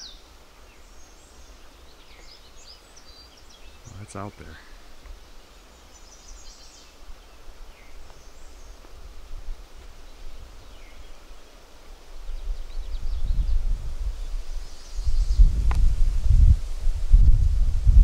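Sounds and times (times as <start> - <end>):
faint songbird phrases: 0.0 - 15.6
low rumbling on microphone: 12.3 - 18.0.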